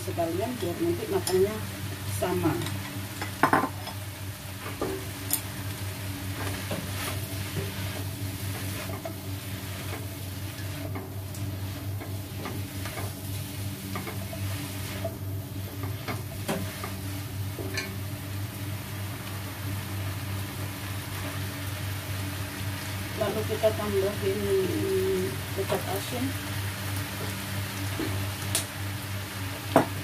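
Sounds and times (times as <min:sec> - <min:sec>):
food sizzling in a wok: 0:00.0 - 0:30.0
utensils scraping and tapping pan: 0:08.6 - 0:13.2, 0:13.8 - 0:17.0, 0:17.6 - 0:18.0.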